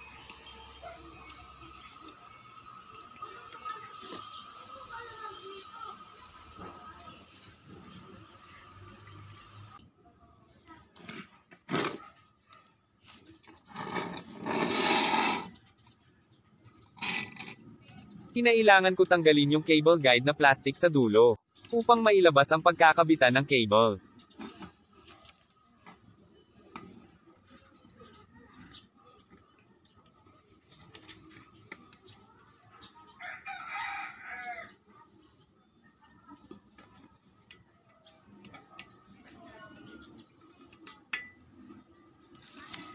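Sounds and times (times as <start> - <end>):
metal rail scraping on tiled floor: 13.7 - 15.6, 17.0 - 17.6
rooster crowing: 33.2 - 34.8.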